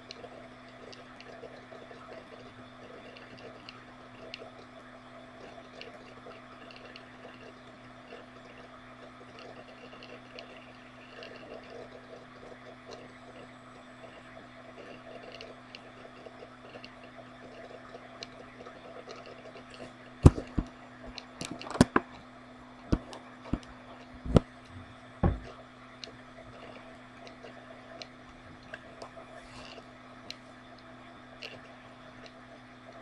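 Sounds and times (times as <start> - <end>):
steady low hum: 0.0 - 33.0
sharp knocks or clicks: 20.2 - 20.7, 25.2 - 25.5.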